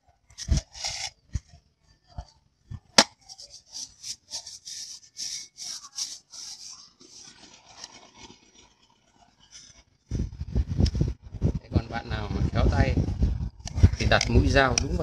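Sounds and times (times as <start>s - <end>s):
knife scratching plastic bottle: 3.1s - 8.7s.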